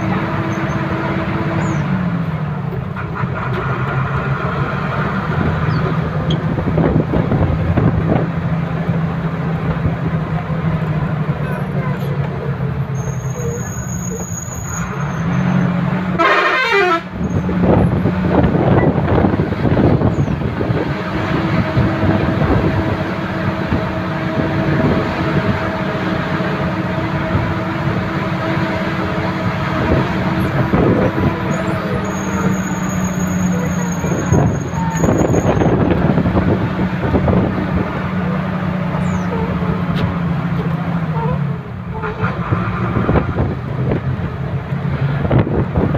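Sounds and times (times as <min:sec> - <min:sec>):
road noise: 0:00.0 - 0:45.9
car horn: 0:16.1 - 0:17.3
vehicle engine running: 0:17.1 - 0:45.9.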